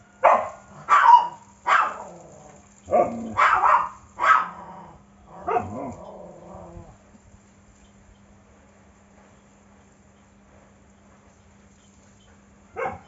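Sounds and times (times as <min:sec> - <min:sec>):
dog barking: 0:00.2 - 0:02.2, 0:02.9 - 0:04.6, 0:05.4 - 0:06.0, 0:12.7 - 0:13.0.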